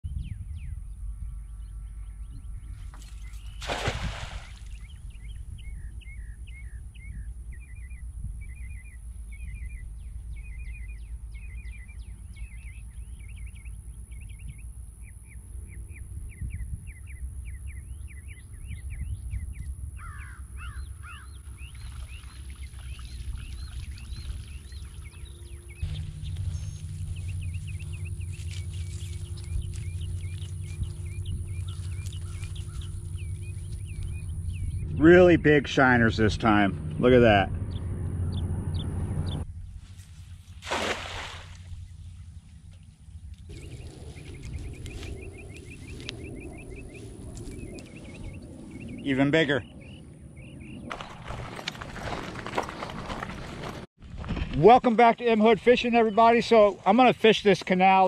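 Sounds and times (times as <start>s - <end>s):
birds chirping: 0.1s - 39.6s, 40.7s - 53.9s, 54.6s - 58.0s
net splashing onto water: 3.6s - 4.8s, 40.5s - 41.8s
steady low rumble: 4.8s - 40.6s, 41.5s - 50.9s.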